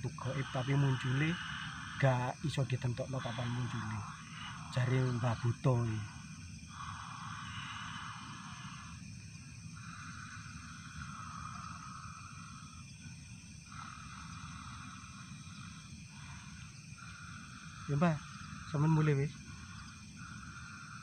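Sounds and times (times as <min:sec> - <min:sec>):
night insects chirring: 0:00.0 - 0:21.0
man hissing long breaths: 0:00.1 - 0:02.5, 0:03.2 - 0:21.0.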